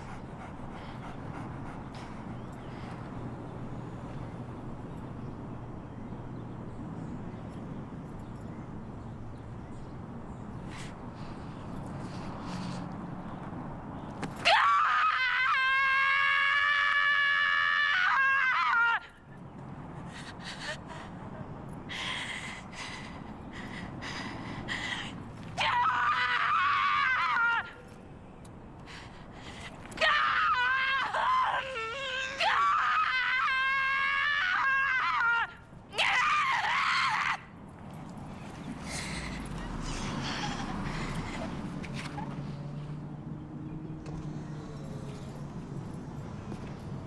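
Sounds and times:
woman screaming: 0:14.5 - 0:19.1, 0:25.6 - 0:27.7, 0:30.0 - 0:37.4.

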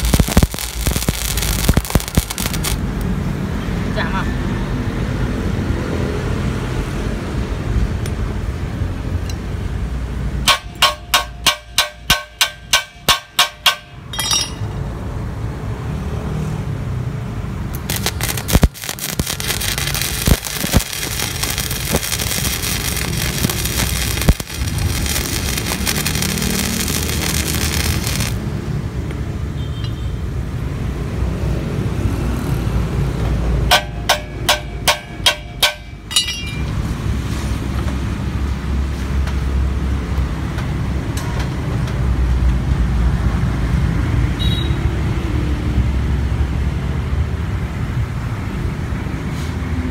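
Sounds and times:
welding arc crackling: 0:00.0 - 0:03.3, 0:17.6 - 0:28.6
ringing metal strikes on steel: 0:10.5 - 0:14.8, 0:33.7 - 0:36.8.

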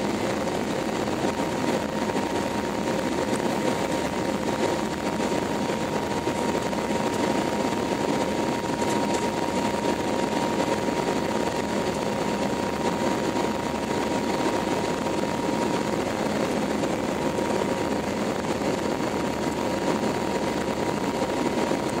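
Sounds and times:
airplane cabin roar: 0:00.0 - 0:22.0
steady whine: 0:00.0 - 0:22.0.

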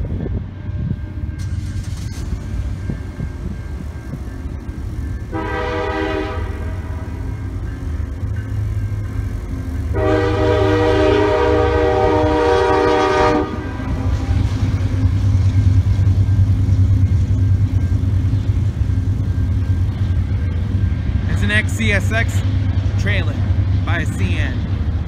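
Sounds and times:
locomotive engine rumbling: 0:00.0 - 0:25.0
locomotive air horn: 0:05.3 - 0:07.2, 0:09.9 - 0:14.4.

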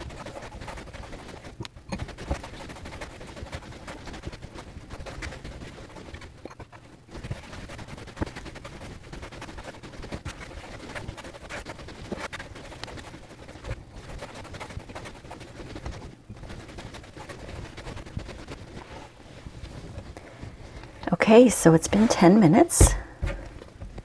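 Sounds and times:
dough kneading thumps: 0:00.0 - 0:24.0.

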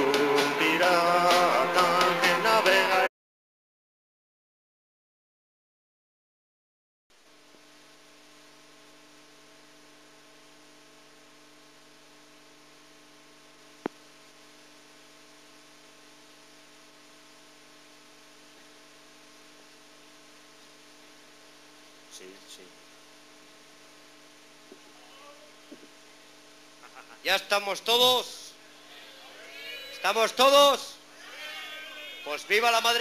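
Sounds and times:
electrical mains hum with hiss: 0:07.2 - 0:33.0.

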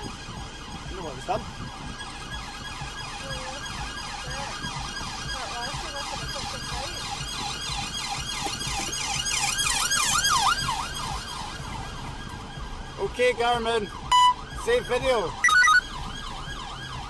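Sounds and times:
police sirens wailing: 0:00.0 - 0:17.0.

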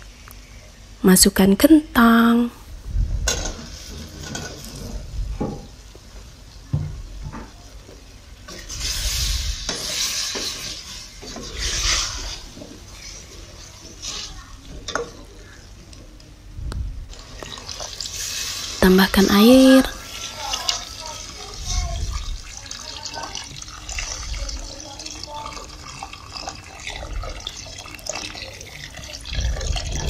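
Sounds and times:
food sizzling in oil: 0:03.2 - 0:05.0, 0:08.2 - 0:15.5, 0:17.1 - 0:30.0
spatula scraping and stirring: 0:03.3 - 0:05.1, 0:08.5 - 0:15.3, 0:17.1 - 0:18.8, 0:19.6 - 0:30.0.

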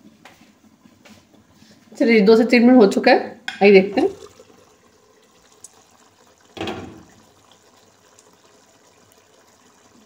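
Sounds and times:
curry bubbling: 0:03.6 - 0:10.0
glass lid knocking down: 0:06.6 - 0:07.1.

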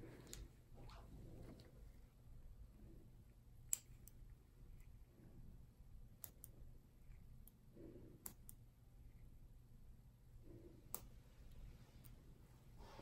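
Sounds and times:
faint scissors snipping clicks: 0:03.6 - 0:04.2, 0:06.2 - 0:06.6, 0:08.2 - 0:08.6.

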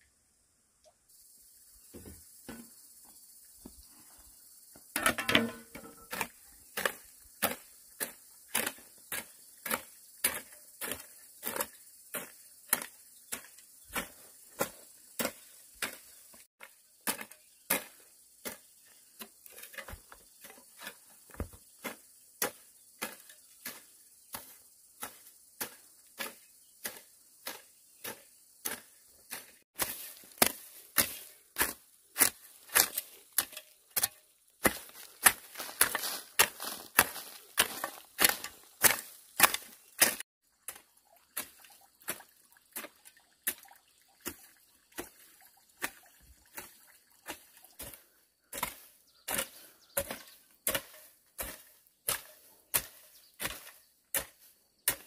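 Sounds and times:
knocks on bamboo: 0:01.9 - 0:02.8, 0:05.0 - 0:06.2.

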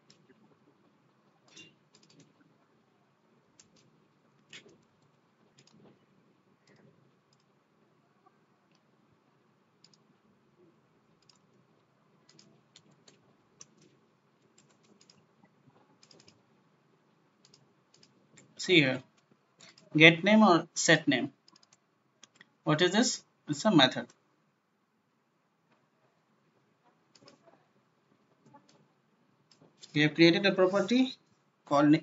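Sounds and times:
low room hiss: 0:00.0 - 0:32.0
keyboard and mouse clicks: 0:01.5 - 0:02.4, 0:03.6 - 0:06.0, 0:06.6 - 0:07.6, 0:09.8 - 0:10.1, 0:11.1 - 0:15.3, 0:16.0 - 0:16.4, 0:17.4 - 0:19.9, 0:21.4 - 0:22.5, 0:27.1 - 0:27.5.

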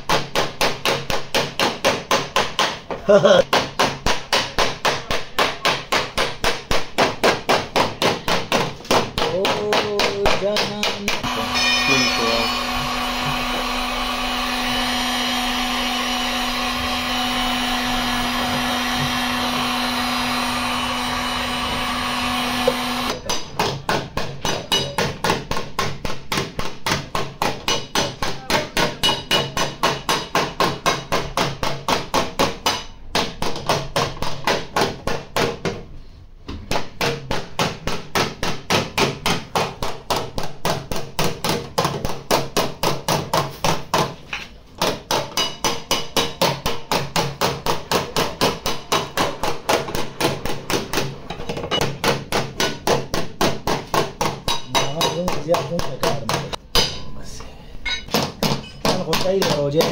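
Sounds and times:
hammer tapping on metal: 0:00.0 - 0:13.4, 0:22.6 - 0:35.8, 0:44.8 - 0:57.1, 0:57.8 - 0:59.9
heat gun blowing hum: 0:11.2 - 0:23.2.

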